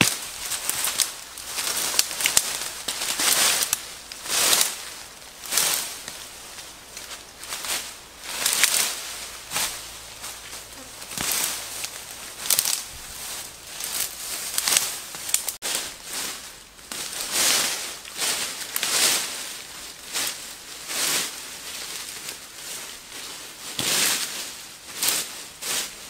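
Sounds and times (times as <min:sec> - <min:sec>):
twigs snapping: 0:00.0 - 0:15.6
footsteps crunching through leaves: 0:00.0 - 0:26.0.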